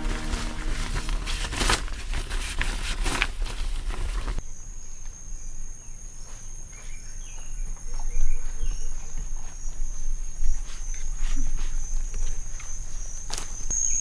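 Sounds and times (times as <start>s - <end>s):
insects trilling: 4.4s - 14.0s.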